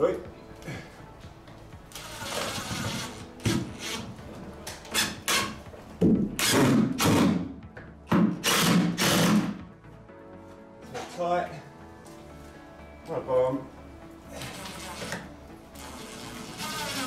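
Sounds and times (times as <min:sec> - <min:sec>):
drill driving screws into wood: 0:02.0 - 0:04.1, 0:04.9 - 0:05.6, 0:06.4 - 0:07.5, 0:08.1 - 0:09.6, 0:15.8 - 0:17.0.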